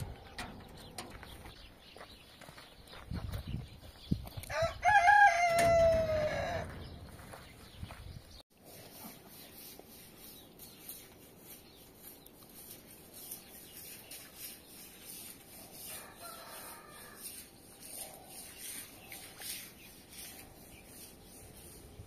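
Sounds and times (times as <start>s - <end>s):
string mop swishing on wet tiles: 8.7s - 22.0s.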